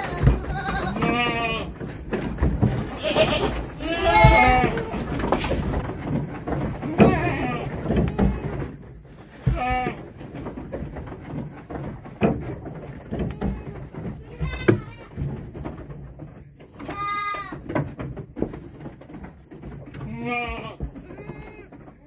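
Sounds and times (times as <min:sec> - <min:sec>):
goats bleating: 0:00.0 - 0:01.8, 0:02.8 - 0:05.2, 0:06.8 - 0:08.6, 0:09.4 - 0:10.0, 0:13.3 - 0:15.2, 0:16.8 - 0:17.6, 0:20.0 - 0:21.7
knocks and rustles: 0:00.0 - 0:22.0.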